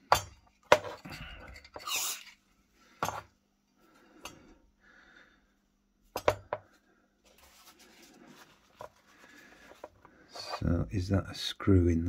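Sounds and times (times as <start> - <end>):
soft rubbing: 7.2 - 10.7.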